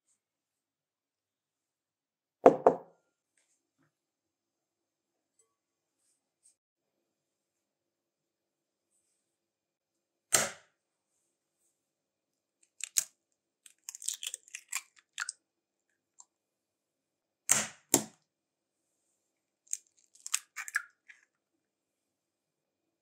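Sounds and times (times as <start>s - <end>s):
eggshell knocking on glass bowl: 2.5s - 2.8s
eggshell crackling: 12.8s - 13.1s, 13.7s - 15.3s, 19.7s - 21.2s.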